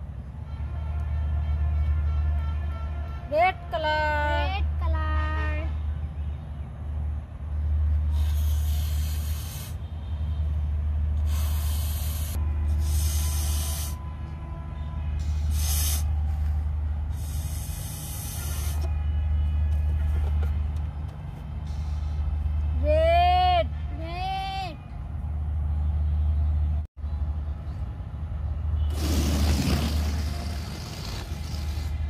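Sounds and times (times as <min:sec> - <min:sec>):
balloon being blown up: 0:28.9 - 0:32.0.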